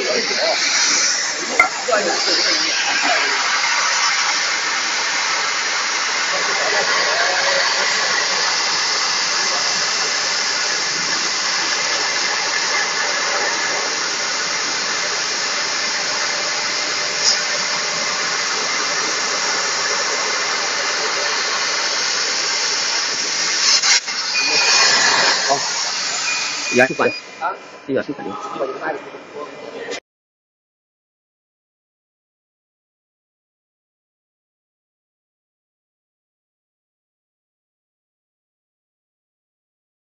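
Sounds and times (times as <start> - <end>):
laser cutter hissing: 0.0 - 28.9.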